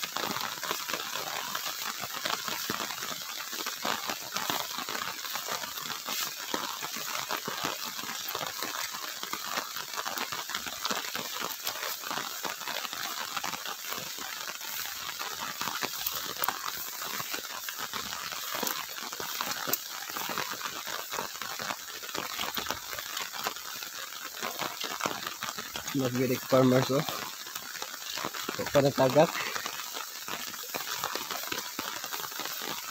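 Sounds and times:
footsteps rustling through weeds: 13.7s - 23.2s.

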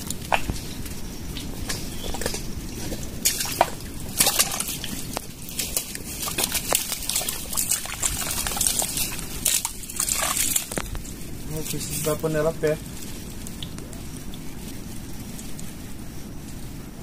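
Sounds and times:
wet mud squelching: 1.4s - 12.2s
wet smacks and splashes: 2.1s - 10.9s.

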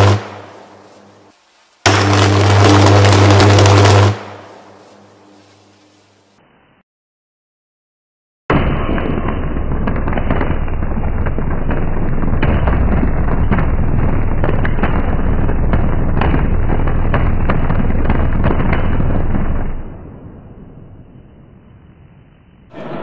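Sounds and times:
electric arc buzzing and cracking: 0.0s - 6.0s.

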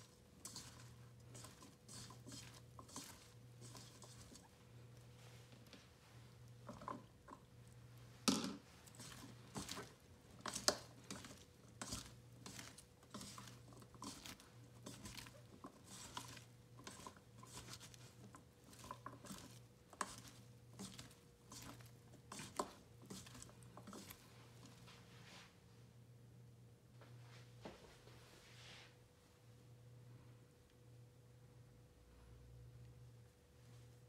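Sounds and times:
hand mixing coated vegetable pieces: 0.0s - 25.4s
faint steady hum: 0.0s - 34.0s.

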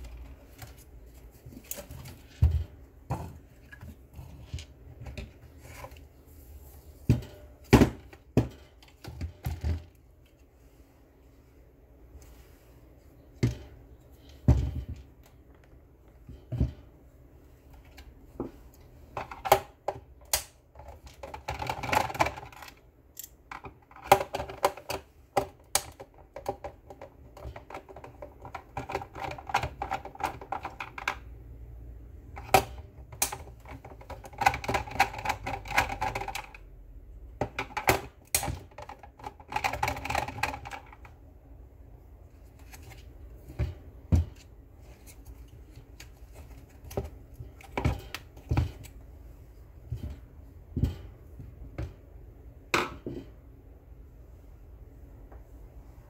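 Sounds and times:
plastic housing clicking and rattling: 32.4s - 36.6s.

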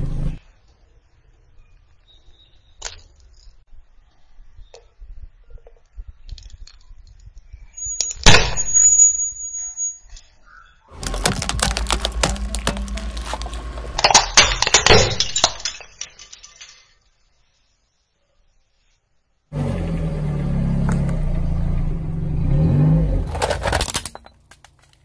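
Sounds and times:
car engine running low: 0.0s - 0.4s, 11.0s - 14.1s, 19.5s - 24.7s
tyre crunching plastic on gravel: 10.9s - 14.2s, 23.2s - 25.0s
sharp crack: 11.0s - 15.8s.

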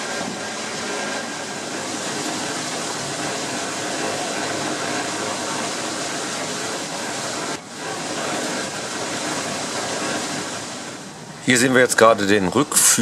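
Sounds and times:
sawmill machinery rumbling: 0.0s - 13.0s.

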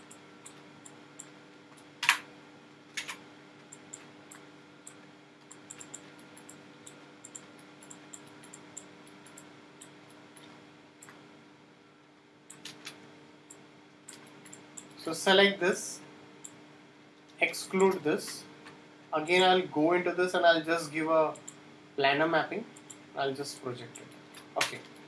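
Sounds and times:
steady low hum: 0.0s - 25.0s
mouse and keyboard clicks: 5.5s - 6.6s.

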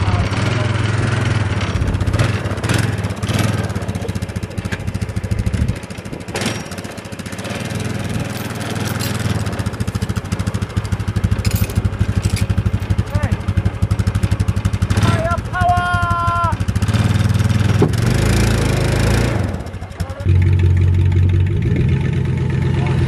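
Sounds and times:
engine running with even pulse: 0.0s - 23.0s
sharp knocks: 17.6s - 18.2s.

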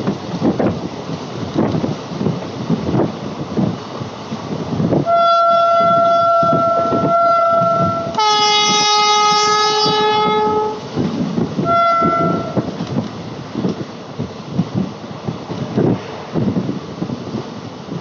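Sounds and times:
train rumble and clickety-clack: 0.0s - 18.0s
train horn: 5.0s - 10.9s, 11.6s - 12.8s.

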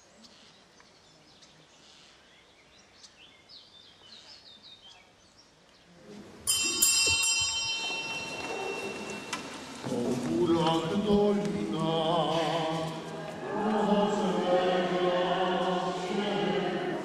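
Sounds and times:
faint birdsong: 0.0s - 6.2s
high-pitched bell ringing: 6.5s - 9.9s.

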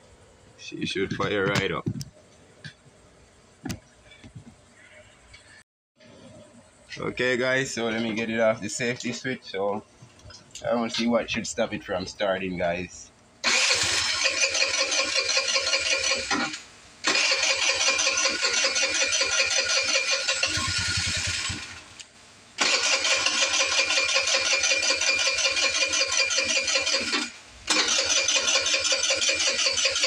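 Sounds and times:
scooter starter cranking engine: 13.4s - 21.9s, 22.6s - 30.0s.

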